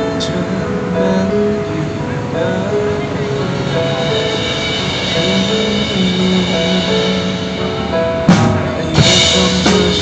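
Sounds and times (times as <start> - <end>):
pop ballad backing track: 0.0 - 10.0
sustained keyboard notes: 0.0 - 10.0
acoustic drum kit: 2.3 - 10.0.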